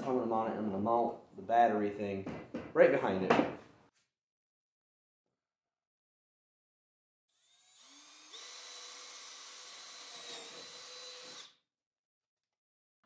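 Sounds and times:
cordless drill whining: 7.3 - 11.6.

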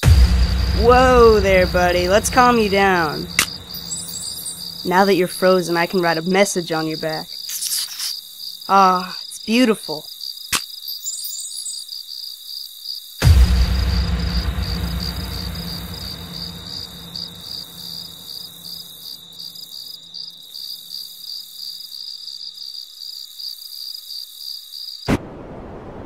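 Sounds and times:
deep rumble: 0.0 - 5.4, 13.2 - 18.9
crickets chirping: 0.0 - 25.1.

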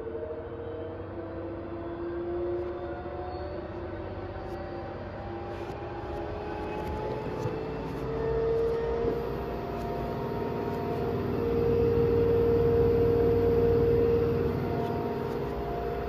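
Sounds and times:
washing machine spinning: 9.2 - 16.0.

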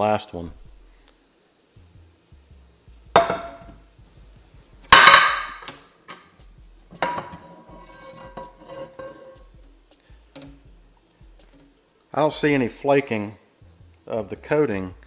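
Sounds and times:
frying pans clanking on stone: 3.2 - 3.7, 4.9 - 6.3, 6.9 - 9.5.

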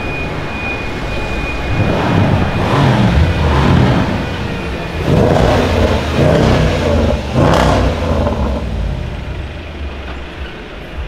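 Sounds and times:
car exhaust accelerating past: 1.3 - 9.8.

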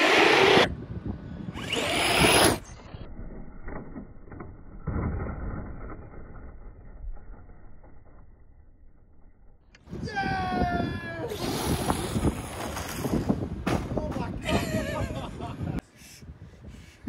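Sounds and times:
electric motor whining: 1.5 - 2.8.

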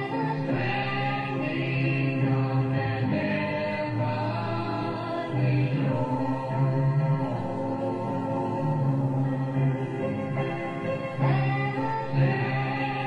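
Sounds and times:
instrumental backing: 0.0 - 13.0
vocal group singing in harmony: 0.0 - 13.0.

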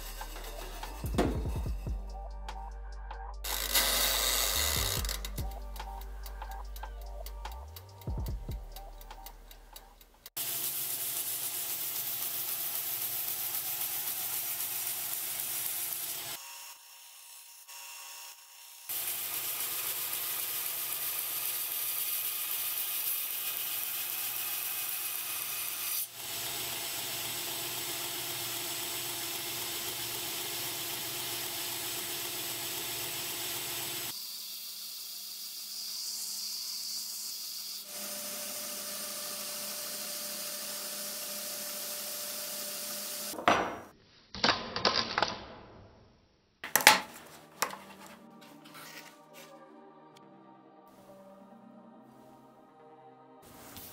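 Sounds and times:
belt grinder grinding steel: 0.0 - 2.0, 3.4 - 6.5, 10.0 - 34.7, 35.4 - 43.4.

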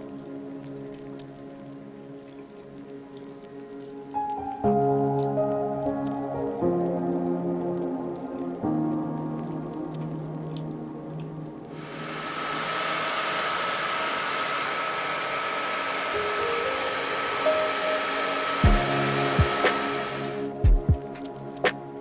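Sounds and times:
hair dryer blowing: 11.8 - 20.6.

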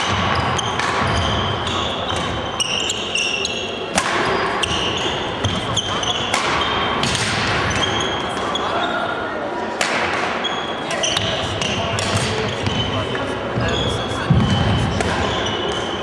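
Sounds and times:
rackets hitting shuttlecock: 0.0 - 3.1, 3.8 - 8.5, 9.7 - 12.8, 14.3 - 15.9
faint voices: 1.3 - 16.0.

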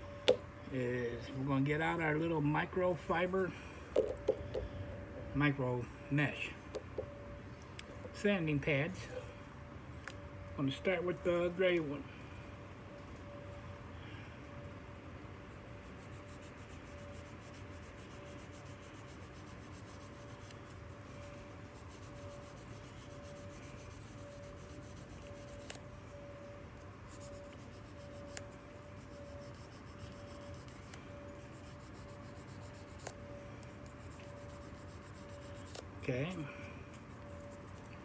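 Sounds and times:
faint steady hum: 0.0 - 38.0
sanding pad rubbing: 16.0 - 20.5, 21.2 - 25.8, 27.1 - 33.2, 33.9 - 35.8.

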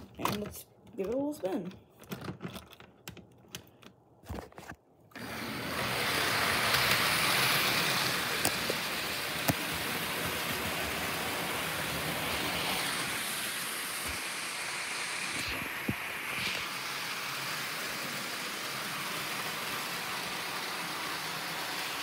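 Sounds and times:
model train whirring rattle: 5.2 - 15.2, 16.8 - 22.0.

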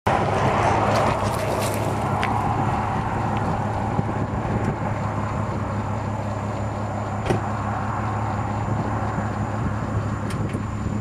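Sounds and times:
car engine idling: 0.1 - 11.0
car door shutting: 7.2 - 7.5.

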